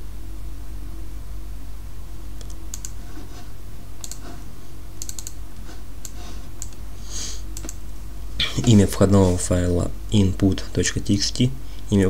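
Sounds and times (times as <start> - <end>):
low electrical hum: 0.0 - 12.0
computer mouse and keyboard clicks: 2.4 - 3.4, 4.0 - 4.4, 5.0 - 6.8, 7.6 - 7.8.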